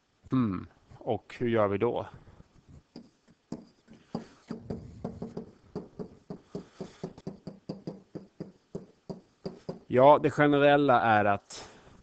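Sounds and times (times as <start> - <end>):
stylus tapping on whiteboard: 2.9 - 9.9.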